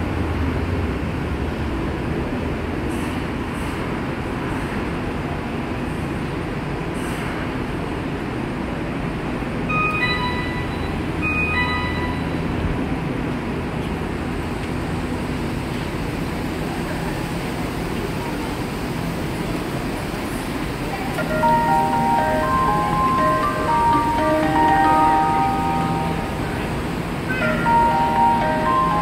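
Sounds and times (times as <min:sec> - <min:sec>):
underground station noise: 0:00.0 - 0:29.0
electronic door chime: 0:09.7 - 0:12.4, 0:21.2 - 0:29.0.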